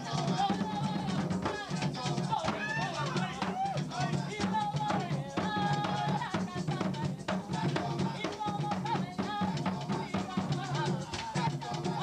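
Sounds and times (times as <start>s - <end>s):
hand drums fast rhythm: 0.0s - 12.0s
people singing: 0.0s - 12.0s.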